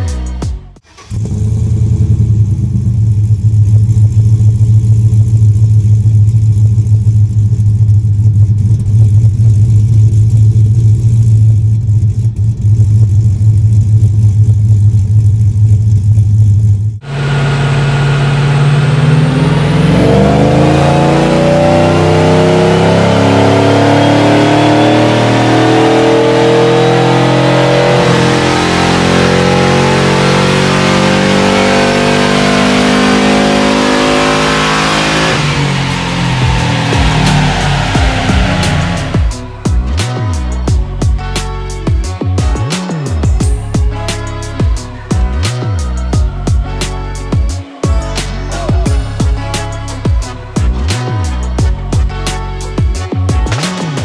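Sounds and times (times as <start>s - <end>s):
engine revving on a dyno: 0.8s - 40.2s
loud low rumble: 1.1s - 42.5s.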